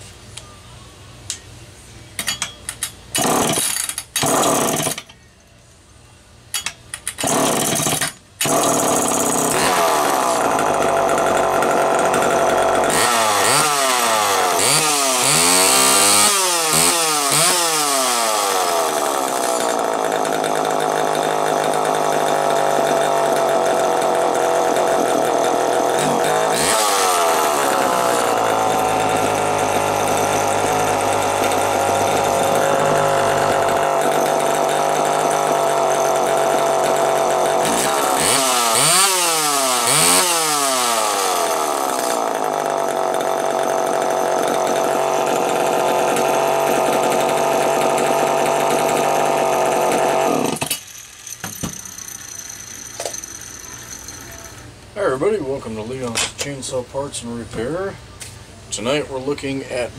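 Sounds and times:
chainsaw engine revving: 3.2 - 5.0, 7.2 - 50.7
recoil starter pulls: 6.9 - 13.8, 18.3 - 53.4.

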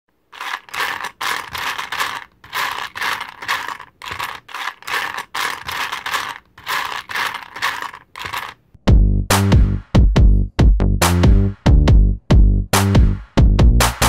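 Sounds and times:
scratchy rattling noise bursts: 0.2 - 8.6.

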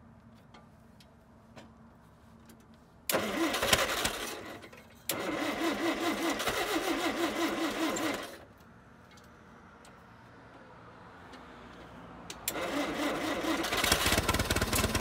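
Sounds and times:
starter cranking engine: 3.1 - 8.5, 12.4 - 15.0.

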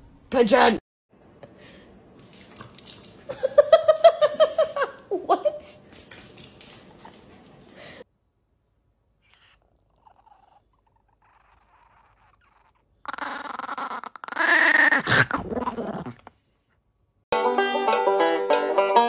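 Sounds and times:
small dog growling: 9.4 - 16.4
banjo music: 17.3 - 19.0.

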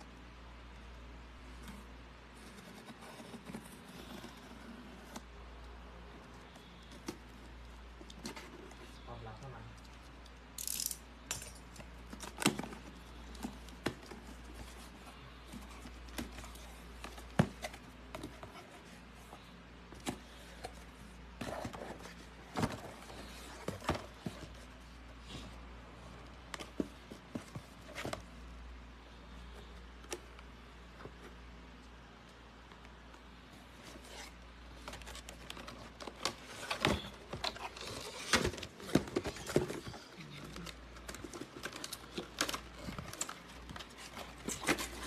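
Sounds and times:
cardboard box handling: 12.1 - 25.0.

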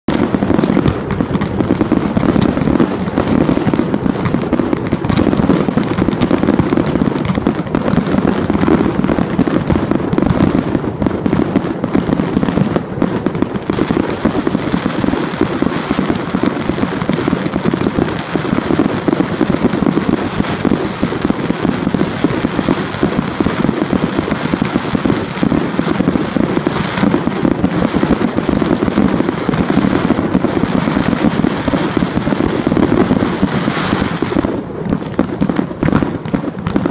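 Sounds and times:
fireworks launches and bursts: 0.0 - 36.9.

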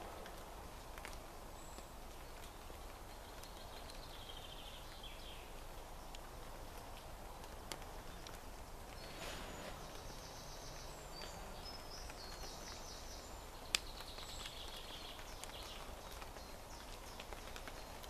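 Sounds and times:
faint ticks: 13.7 - 18.0.

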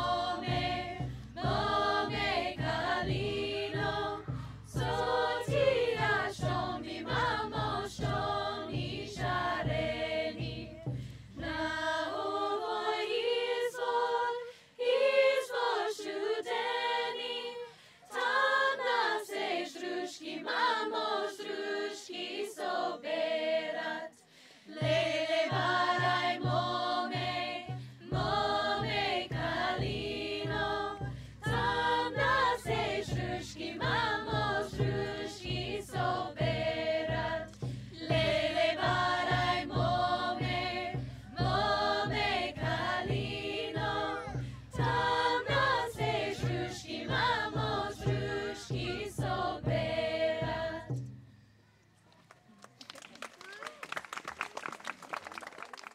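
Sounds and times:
low drum beat: 0.0 - 12.4, 24.8 - 51.3
group singing chant-like song: 0.0 - 51.1.

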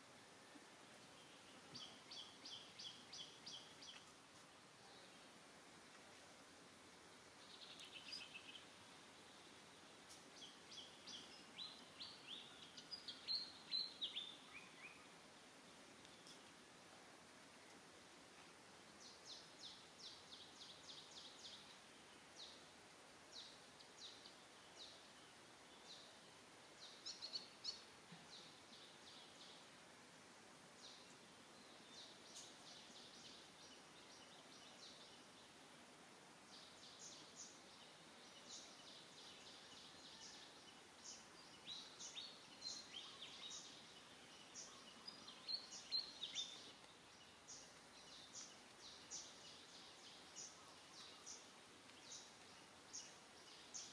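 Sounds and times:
faint outdoor hiss: 0.0 - 53.9
small birds chirping: 0.0 - 53.9.

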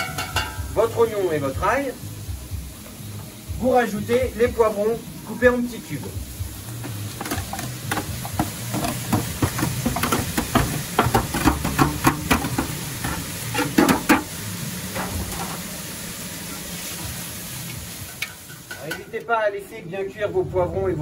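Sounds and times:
sizzle of frying: 0.0 - 21.0
knocks and clatter from tray: 6.8 - 14.3.

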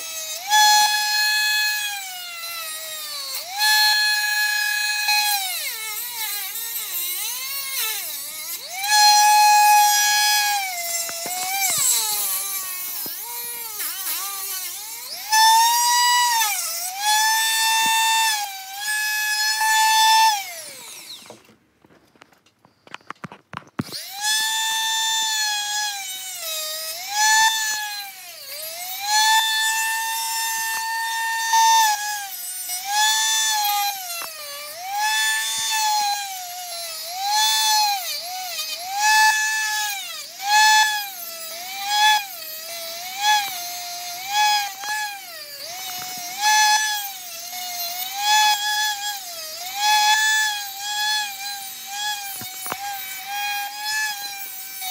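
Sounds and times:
rotary tool whining: 0.0 - 54.9.

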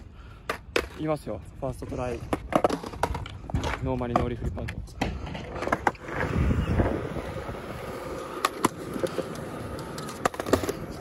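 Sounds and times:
skateboard wheels rolling on concrete: 0.0 - 11.0
skateboard clacks: 8.0 - 11.0.

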